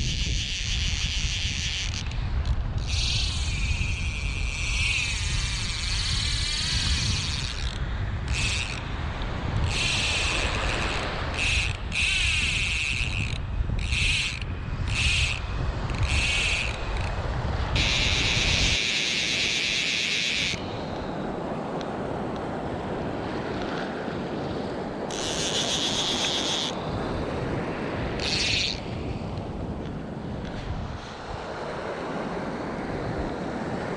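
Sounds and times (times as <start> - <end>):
fly reel ratchet buzzing: 0.0 - 8.8, 9.6 - 21.1, 25.1 - 26.8, 28.2 - 29.4
wind buffeting microphone: 0.0 - 33.9
small waves washing: 17.4 - 33.9.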